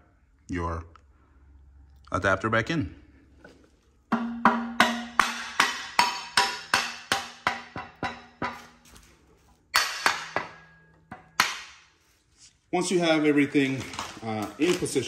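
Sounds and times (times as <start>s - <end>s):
metal ringing: 4.1s - 8.8s, 9.7s - 11.7s
rubber mallet striking metal plate: 4.1s - 8.8s, 9.8s - 11.9s.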